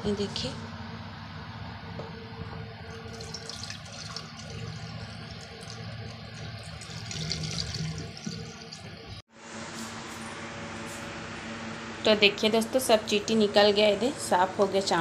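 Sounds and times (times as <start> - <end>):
water pouring into a steel sink: 2.9 - 9.2.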